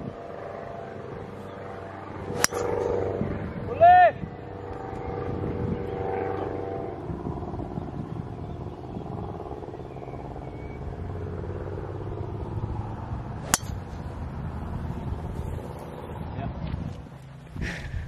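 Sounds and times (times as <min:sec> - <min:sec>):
golf club striking ball: 0:02.3 - 0:03.0, 0:13.4 - 0:14.2.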